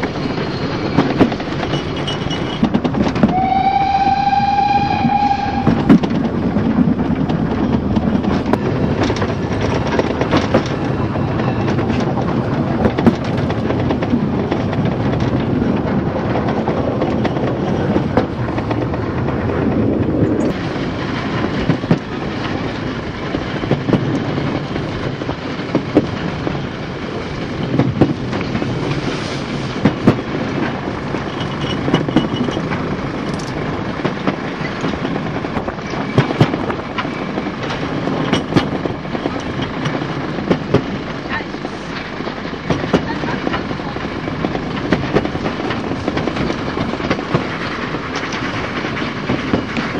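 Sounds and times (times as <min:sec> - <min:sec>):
steam train rumble and hiss: 0:00.0 - 0:49.9
wheels clicking over rail joints: 0:00.0 - 0:49.9.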